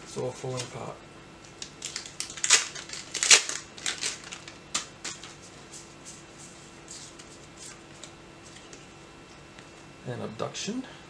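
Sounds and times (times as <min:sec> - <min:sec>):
foil wrapper crinkling and tearing: 0:01.6 - 0:05.4.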